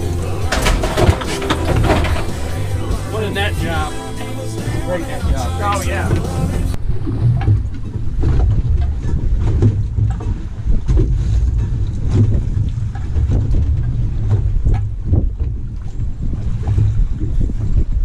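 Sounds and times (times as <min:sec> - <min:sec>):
water knocking against hull: 0:00.0 - 0:04.0, 0:05.1 - 0:18.0
wind rumbling on microphone: 0:06.1 - 0:18.0.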